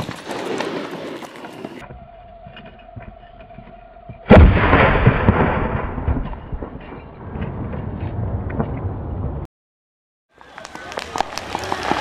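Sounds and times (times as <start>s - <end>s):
firework bang: 4.3s - 6.7s
firework crackling and hissing: 10.4s - 12.0s.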